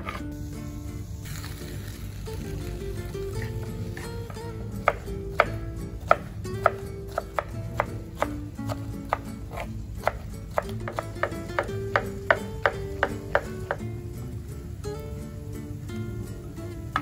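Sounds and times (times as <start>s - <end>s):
knife chopping on cutting board: 0.0s - 0.2s, 3.4s - 13.8s
background music: 0.0s - 17.0s.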